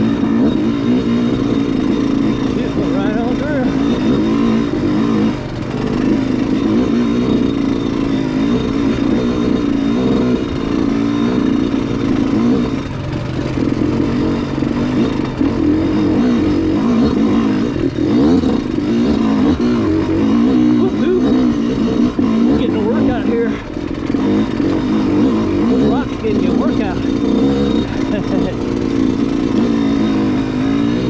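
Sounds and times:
atv engine revving: 0.0s - 31.0s.

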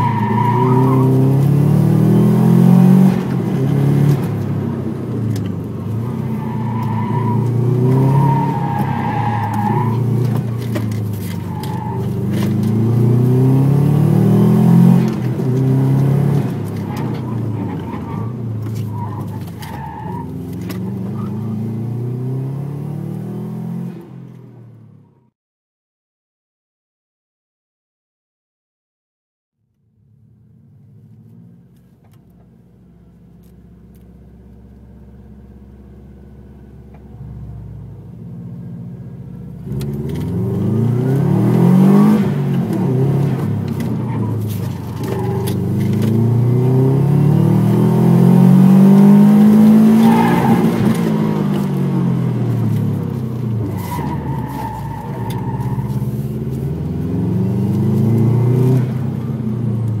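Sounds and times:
car engine revving: 0.0s - 23.9s, 39.4s - 60.0s.

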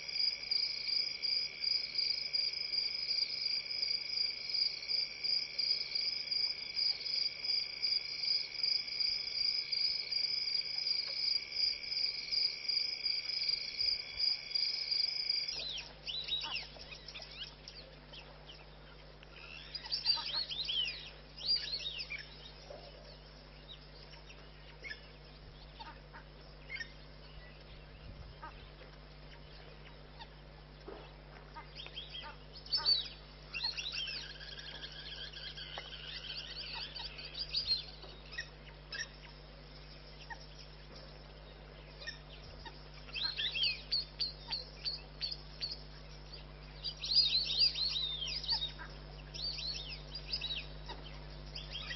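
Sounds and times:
crickets trilling: 0.0s - 17.7s, 30.0s - 51.9s
bird chirps: 15.4s - 51.9s.

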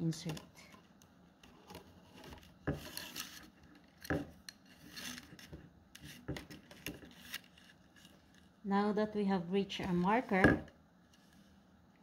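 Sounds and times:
rattan strips scraping: 2.0s - 8.4s.

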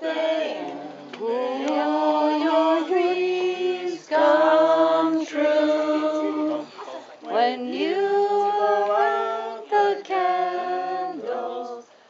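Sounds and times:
voices singing sustained notes: 0.0s - 6.7s, 7.3s - 11.9s.

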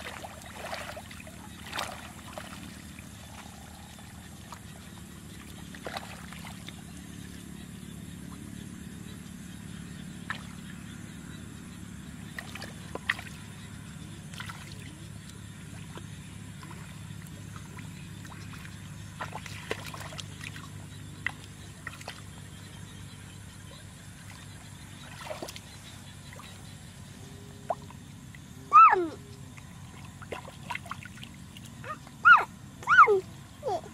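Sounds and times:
hands splashing in muddy water: 0.0s - 3.5s, 17.7s - 22.3s, 25.0s - 26.5s
steady low hum: 0.0s - 33.9s.

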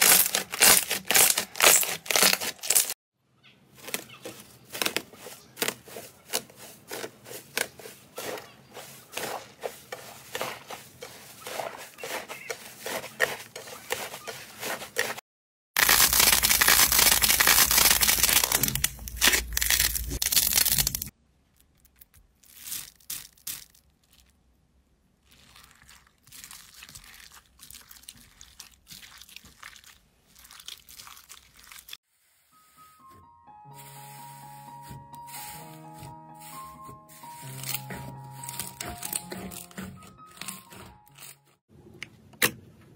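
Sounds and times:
crunchy slime crackling: 0.0s - 3.0s, 15.8s - 21.2s, 25.2s - 32.0s
slime worked in water: 25.1s - 32.0s.

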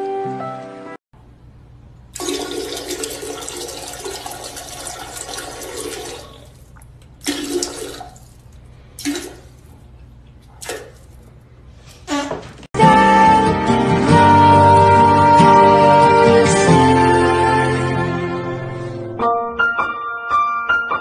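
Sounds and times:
toilet flushing: 2.1s - 9.7s.

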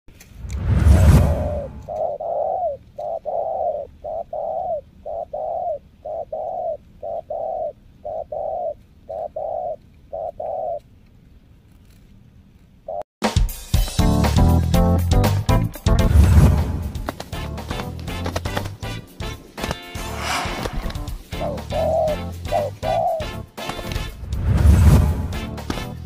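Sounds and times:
dove cooing: 1.6s - 10.8s, 21.3s - 23.4s.

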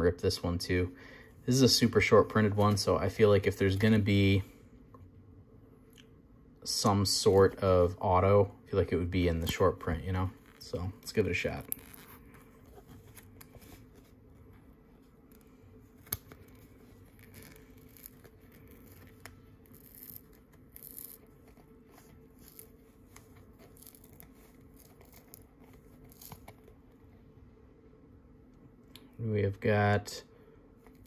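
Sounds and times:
paper scratching and tearing: 16.0s - 26.6s.

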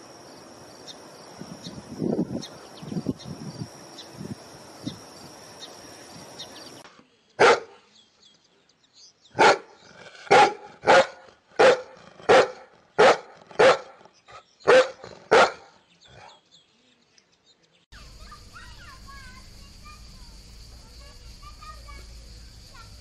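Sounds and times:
large dog barking: 7.4s - 7.8s, 9.4s - 14.0s, 14.6s - 16.4s.

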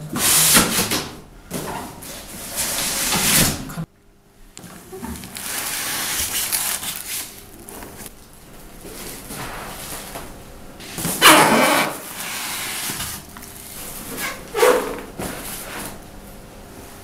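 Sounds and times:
handling foam and plastic bags: 5.0s - 10.3s.

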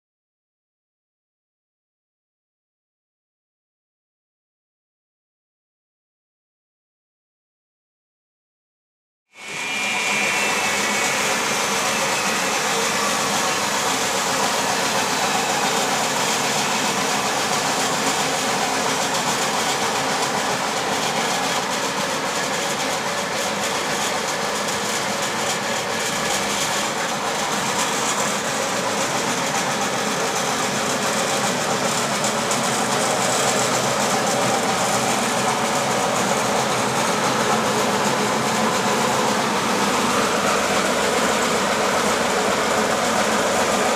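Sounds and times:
sieving machine running: 9.4s - 43.9s.

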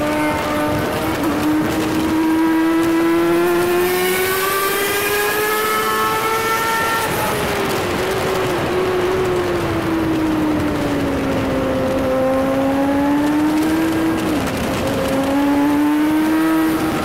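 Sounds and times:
motorcycle engine at high revs: 0.0s - 17.0s.

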